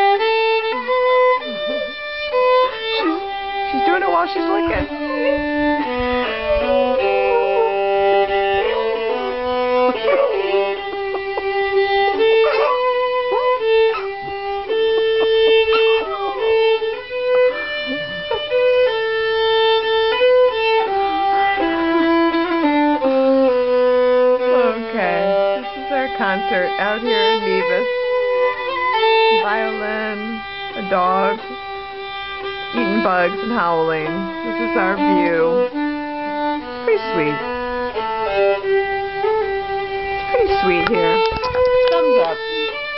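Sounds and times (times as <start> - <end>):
violin slow melody: 0.0 - 42.9
dog howling: 2.6 - 3.4, 4.8 - 19.1, 28.2 - 29.4, 38.0 - 39.5.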